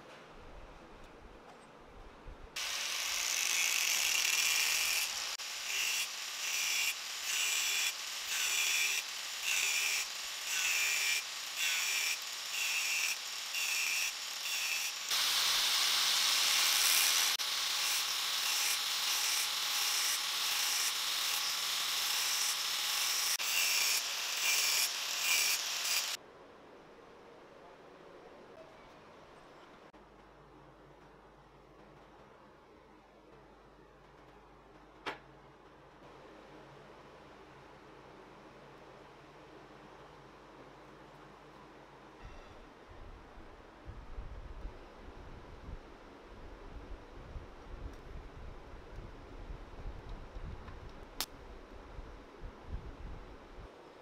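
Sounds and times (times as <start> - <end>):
angle grinder cutting steel: 2.6 - 26.2.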